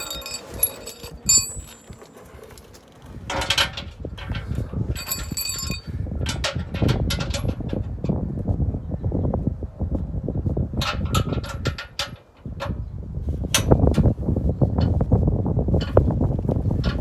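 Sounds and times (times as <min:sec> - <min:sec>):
tools clinking on metal plate: 0:00.0 - 0:02.2, 0:05.0 - 0:05.9
short metallic rings: 0:00.0 - 0:02.6, 0:05.0 - 0:05.9
wind rumble on microphone: 0:00.0 - 0:17.0.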